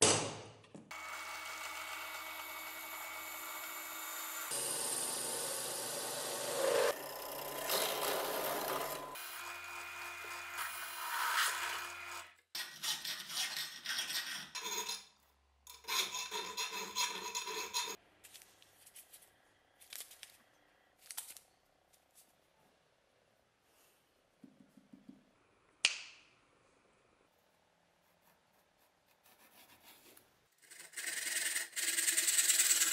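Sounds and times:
hacksaw cutting metal: 4.3 - 9.5, 15.7 - 18.0.

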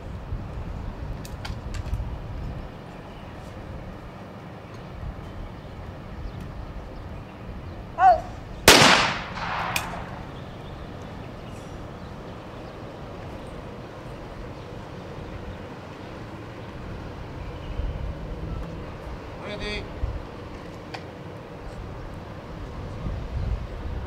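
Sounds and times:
person calling for target: 8.0 - 8.4
faint sharp crack: 8.7 - 10.4
shotgun shot echoing: 8.7 - 10.4.

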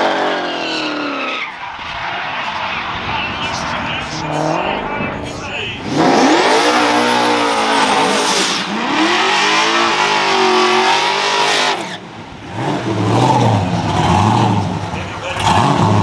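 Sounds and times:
car engine revving hard: 0.0 - 1.4, 3.5 - 16.0
tyres screeching on pavement: 5.7 - 16.0.

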